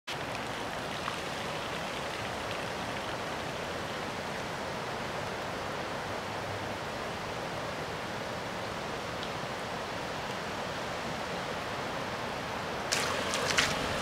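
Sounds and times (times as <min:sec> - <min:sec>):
rain falling on water: 0:00.1 - 0:07.3, 0:12.7 - 0:14.0.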